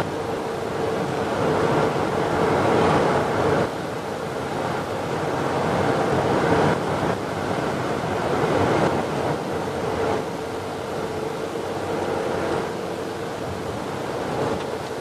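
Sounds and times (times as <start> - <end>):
constant vehicle drone: 0.0 - 15.0
wind and road noise: 0.0 - 15.0.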